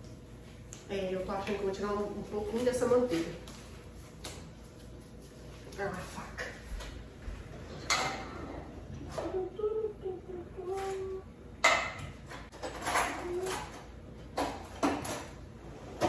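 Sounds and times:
cutlery clattering: 0:11.7 - 0:15.4.

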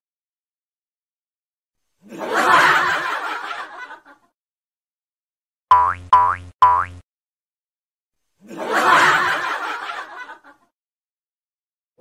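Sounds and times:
burst of laughter: 0:02.0 - 0:04.3, 0:08.4 - 0:10.7.

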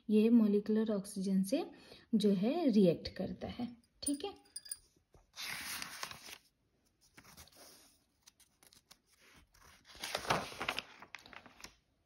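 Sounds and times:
paper page rustling: 0:05.3 - 0:11.9.

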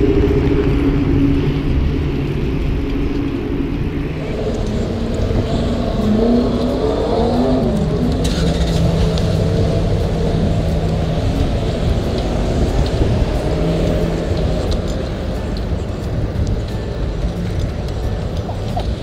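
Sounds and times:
street traffic rumble: 0:00.0 - 0:19.0
vehicle engine revving: 0:03.8 - 0:15.9.

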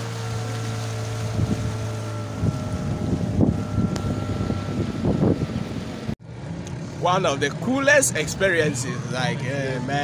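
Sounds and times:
boat engine hum: 0:00.0 - 0:10.0
water rushing along hull: 0:00.0 - 0:10.0
wind buffeting microphone: 0:01.1 - 0:06.2.

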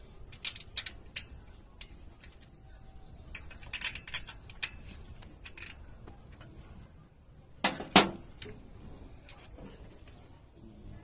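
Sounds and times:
wrench clicking on metal: 0:00.3 - 0:01.4, 0:03.3 - 0:04.8.

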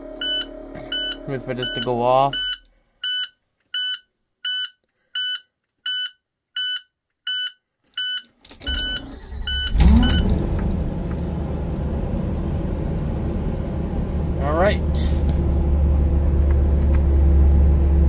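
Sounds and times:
dashboard warning beeps: 0:00.2 - 0:10.4
starter motor cranking: 0:08.5 - 0:11.7
engine starting and idling: 0:08.5 - 0:18.0.

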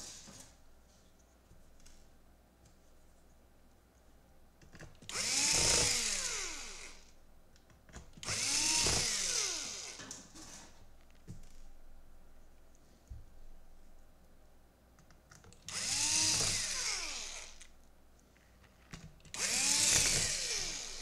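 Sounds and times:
drill motor whining: 0:05.1 - 0:07.1, 0:08.2 - 0:10.0, 0:15.7 - 0:17.7, 0:19.3 - 0:21.0.

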